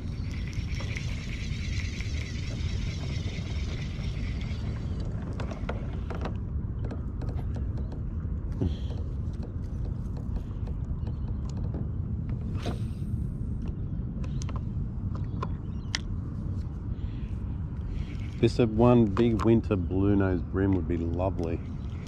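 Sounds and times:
spinning reel whirring: 0.0s - 5.2s
reel clicks and ticks: 0.0s - 11.8s
low rumble: 0.0s - 22.0s.

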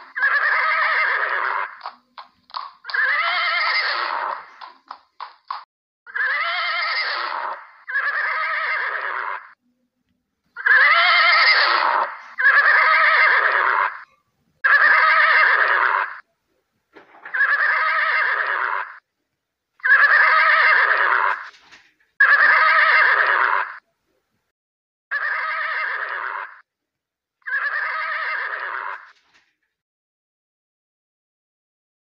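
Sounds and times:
horse neighing: 0.0s - 2.0s, 2.9s - 4.7s, 6.1s - 9.6s, 10.6s - 16.3s, 17.2s - 19.0s, 19.8s - 21.5s, 22.2s - 23.8s, 25.1s - 26.6s, 27.4s - 29.2s.

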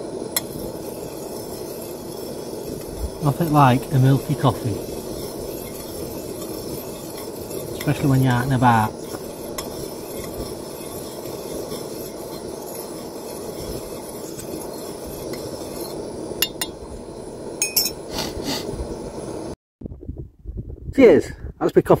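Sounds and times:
gas burner hiss: 0.0s - 19.6s
spoon stirring milk in a pan: 0.3s - 16.8s.

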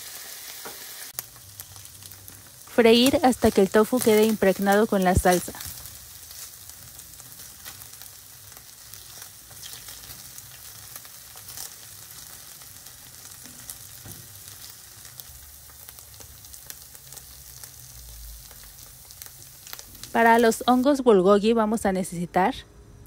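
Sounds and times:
tofu sizzling in oil: 0.0s - 21.2s.

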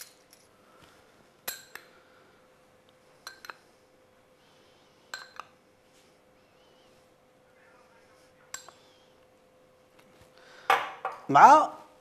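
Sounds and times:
faint steady hum: 0.0s - 12.0s
metal spoon clinking glass bowl: 1.4s - 1.8s, 3.2s - 3.6s, 5.1s - 5.5s.

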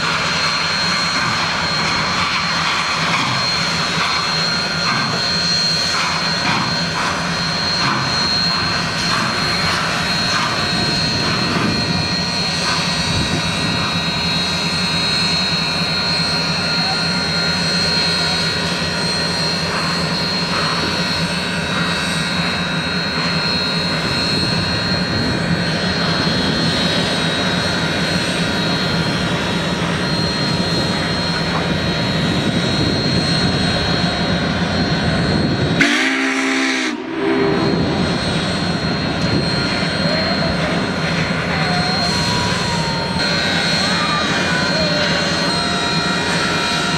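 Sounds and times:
steam train rumble and hiss: 0.0s - 46.9s
short pitched sound: 36.9s - 46.9s.

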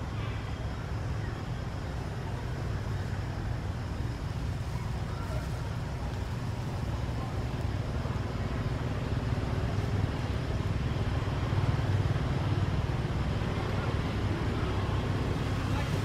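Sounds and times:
low rumbling background noise: 0.0s - 16.0s.

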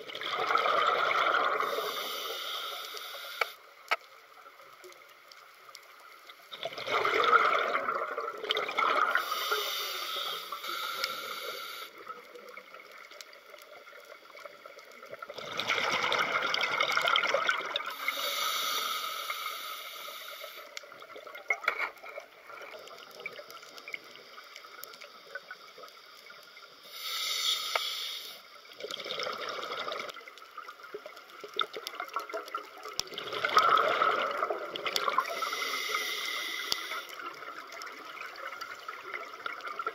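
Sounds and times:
exhaled bubbles gurgling underwater: 0.0s - 3.5s, 6.0s - 27.0s, 28.6s - 39.9s
regulator hissing: 9.2s - 12.0s, 26.9s - 28.4s.

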